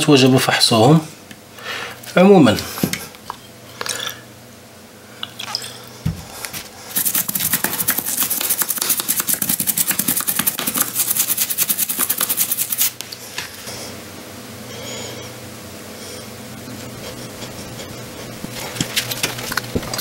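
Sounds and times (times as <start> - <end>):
brush scrubbing circuit board: 6.9 - 13.0, 16.8 - 19.2.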